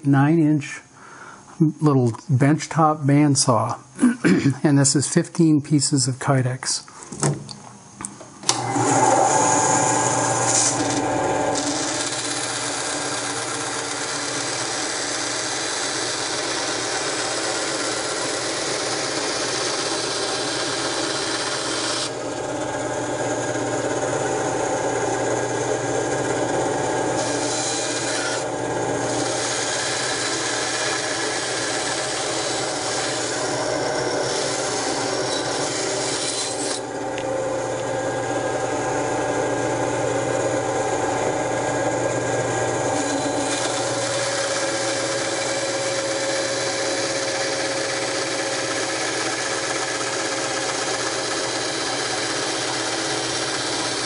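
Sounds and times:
bandsaw motor hum: 8.4s - 54.0s
bandsaw blade rasping: 10.3s - 22.2s, 27.2s - 36.9s, 42.9s - 54.0s.

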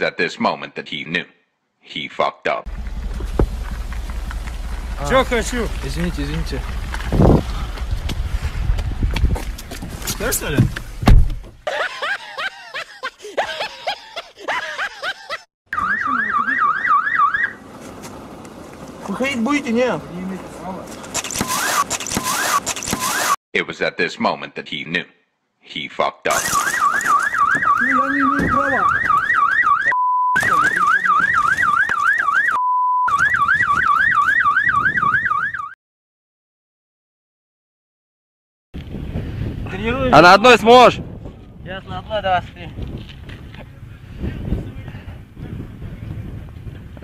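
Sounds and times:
electronic yelp siren wailing: 15.7s - 17.6s, 21.4s - 23.4s, 26.3s - 35.8s
censor bleep: 29.8s - 31.5s, 32.6s - 33.7s.

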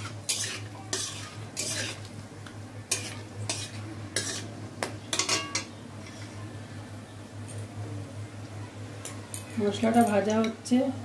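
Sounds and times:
metal spatula scraping a pan: 0.0s - 2.1s, 2.9s - 6.4s
spices sizzling in oil: 0.0s - 6.4s.

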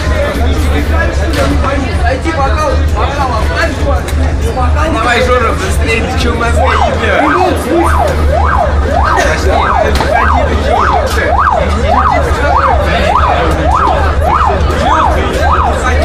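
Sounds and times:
emergency siren wailing: 6.2s - 16.0s.

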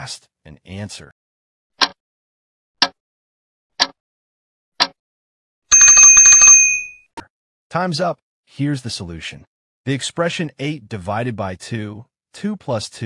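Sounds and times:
alarm clock ringing: 5.7s - 7.0s.

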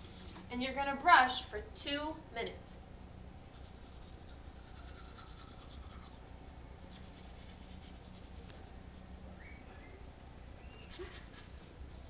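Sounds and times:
toothbrush bristles scratching: 3.5s - 6.2s, 6.9s - 9.2s, 10.9s - 12.0s.

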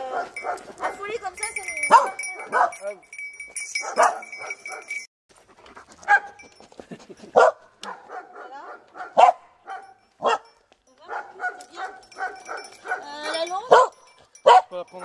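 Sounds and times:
dog barking excitedly: 0.0s - 1.2s, 1.9s - 3.0s, 3.8s - 5.1s, 6.0s - 6.4s, 7.3s - 10.5s, 11.1s - 14.8s
dog yelping: 1.8s - 2.9s, 3.8s - 5.1s, 7.4s - 10.5s, 11.1s - 14.7s.

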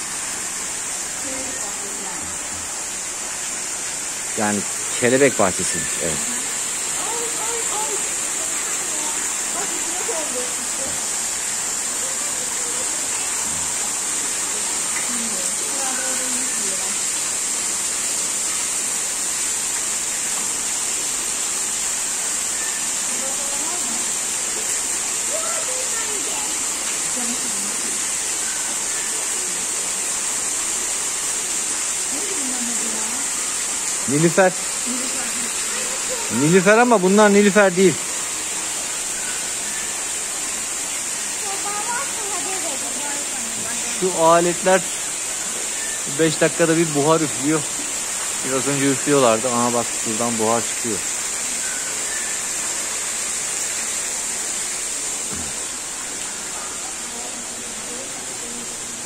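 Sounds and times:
misting nozzles hissing: 0.0s - 59.0s
waterfall splashing into pond: 0.0s - 59.0s.

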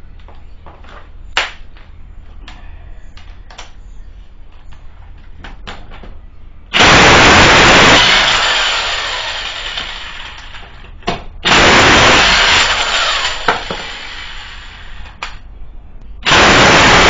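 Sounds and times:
electric impact wrench spinning: 6.7s - 10.7s, 11.4s - 15.2s, 16.2s - 17.0s.

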